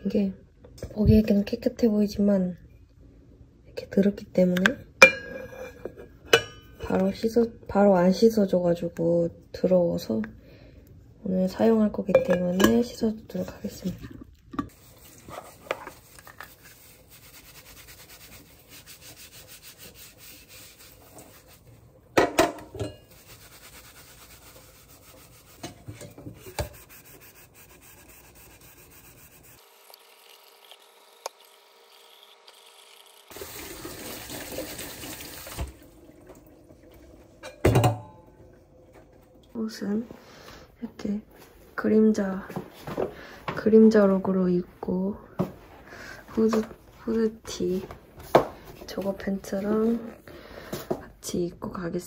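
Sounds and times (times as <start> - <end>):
wet rubbing of scrubbing: 14.7 - 21.8, 23.0 - 29.6
water running from tap: 29.4 - 37.4.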